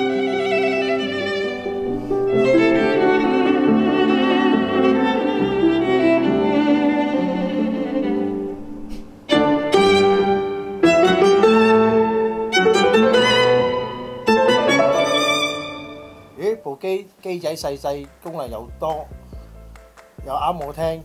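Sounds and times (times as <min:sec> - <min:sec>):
violin music over loudspeakers: 0:00.0 - 0:16.6.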